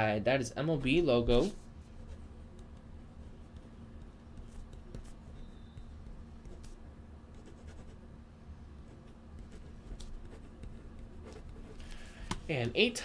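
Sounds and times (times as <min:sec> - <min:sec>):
steady low hum: 0:00.0 - 0:13.0
pen scratching on paper: 0:02.0 - 0:08.0, 0:08.9 - 0:11.8.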